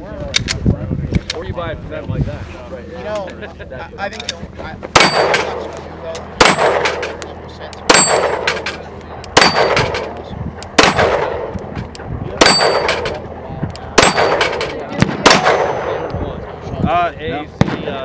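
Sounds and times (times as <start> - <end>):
pistol shots: 5.0 - 5.7, 6.3 - 13.2, 14.0 - 16.1
steel plate ringing: 6.5 - 10.1, 12.4 - 13.2, 14.0 - 16.4.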